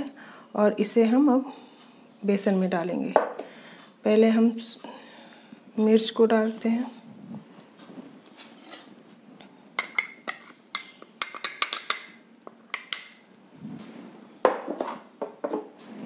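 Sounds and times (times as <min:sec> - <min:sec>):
spoon clinking on a glass bowl: 0:09.8 - 0:13.2.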